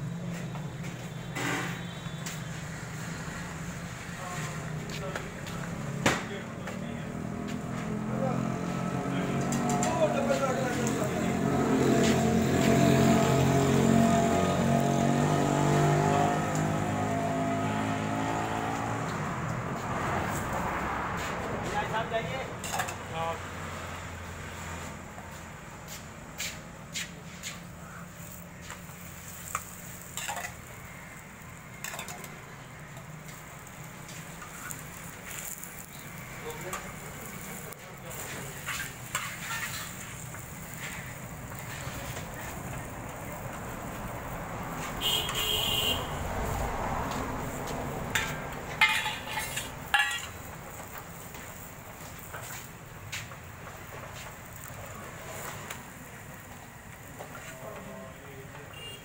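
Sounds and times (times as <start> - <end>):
steady background noise: 0.0 - 59.0
metal spatula clinking on griddle: 29.4 - 30.7, 31.8 - 32.3, 38.2 - 40.2, 48.1 - 50.5
metal spatula clinking on metal: 48.2 - 50.4.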